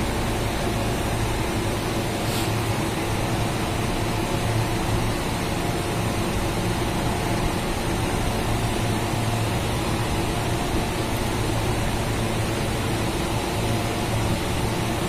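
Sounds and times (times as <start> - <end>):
chiller compressor humming: 0.0 - 15.0
fan rush of air: 0.0 - 15.0.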